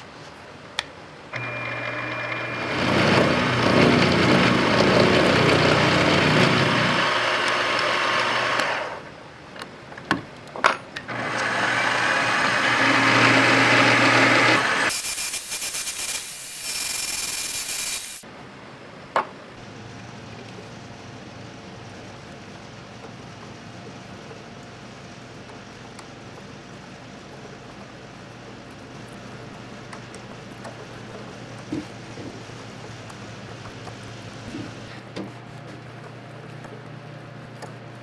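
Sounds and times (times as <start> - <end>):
drill boring into metal: 1.3 - 9.0, 11.1 - 18.2
end mill cutting metal: 1.3 - 9.1, 11.1 - 15.4
mill-drill motor running: 1.3 - 9.1, 11.1 - 15.0.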